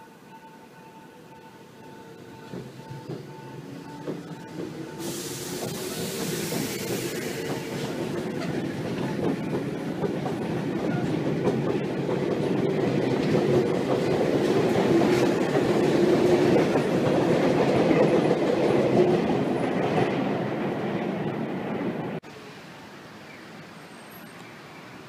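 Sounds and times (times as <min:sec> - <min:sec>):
electric train hum: 0:00.0 - 0:23.1
train wheel clatter: 0:01.8 - 0:20.4.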